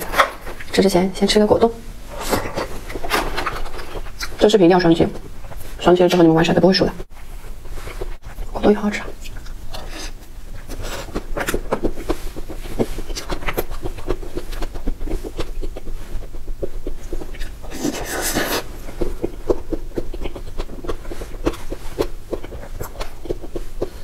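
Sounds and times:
wet chewing and lip smacks: 0:07.7 - 0:24.0.

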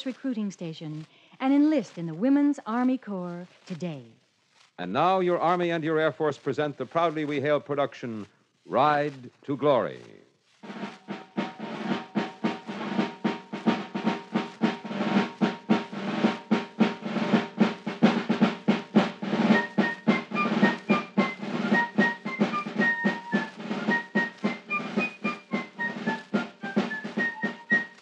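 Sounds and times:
drum beating fast rhythm: 0:10.6 - 0:28.0
higher melody: 0:10.6 - 0:28.0.

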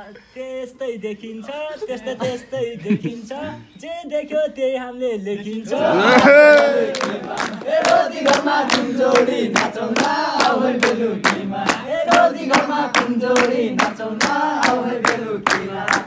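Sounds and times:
men singing together: 0:05.3 - 0:16.0
hand clapping: 0:06.5 - 0:16.0.

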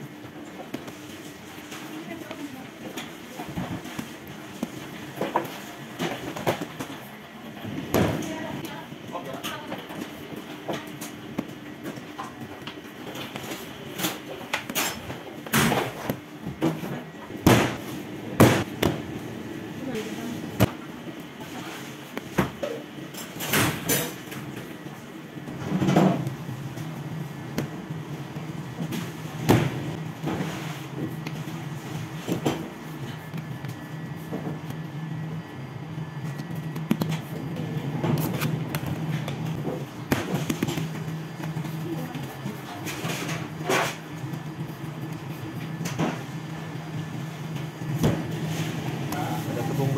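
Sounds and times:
low machine hum: 0:00.0 - 0:49.9
hands patting dough: 0:36.2 - 0:42.7.

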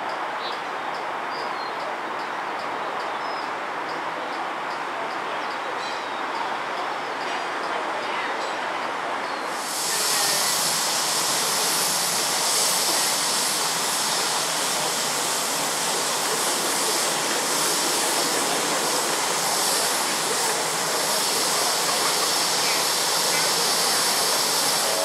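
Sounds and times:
steam hissing: 0:09.4 - 0:25.0.

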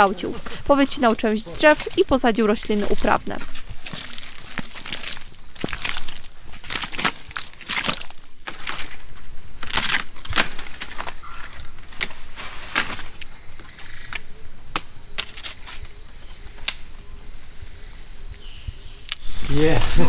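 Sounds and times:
insect chorus: 0:00.0 - 0:20.0.

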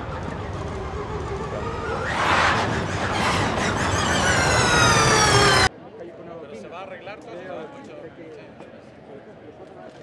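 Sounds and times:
electric motor whine: 0:00.0 - 0:05.7
race car passing: 0:00.0 - 0:05.7.

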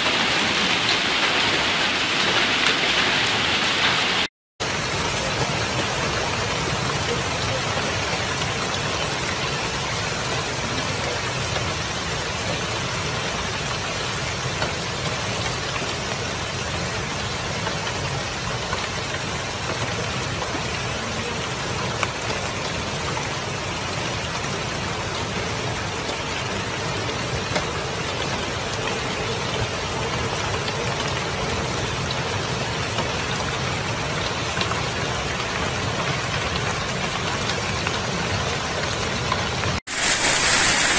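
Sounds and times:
sharp hail hits: 0:00.0 - 0:04.3, 0:39.8 - 0:40.9
hail and heavy rain pelting: 0:00.0 - 0:40.9.

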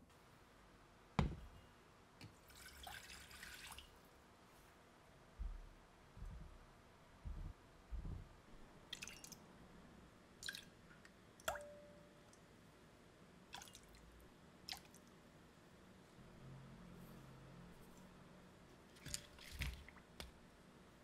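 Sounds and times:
soft low thumps: 0:05.4 - 0:06.6, 0:07.2 - 0:08.4.

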